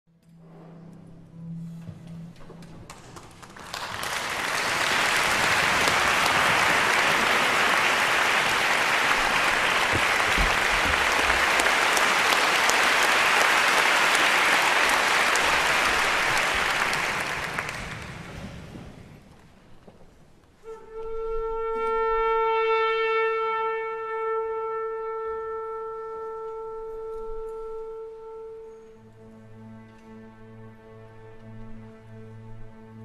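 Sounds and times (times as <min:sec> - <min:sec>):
audience applauding: 0:02.9 - 0:19.1.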